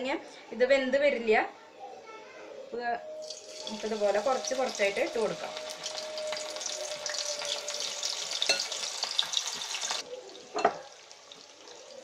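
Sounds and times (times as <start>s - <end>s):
prawns deep-frying in oil: 3.2s - 12.0s.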